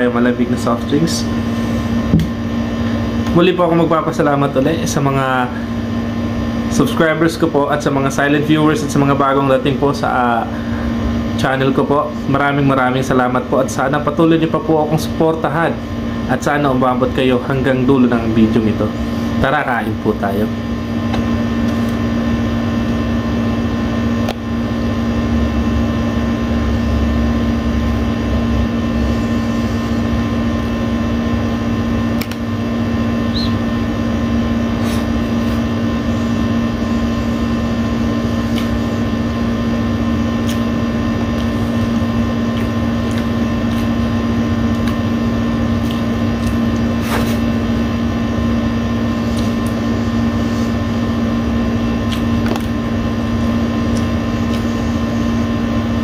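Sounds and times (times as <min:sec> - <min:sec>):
air conditioner humming: 0:00.0 - 0:56.0
eating and chewing: 0:41.3 - 0:44.0, 0:53.8 - 0:54.7.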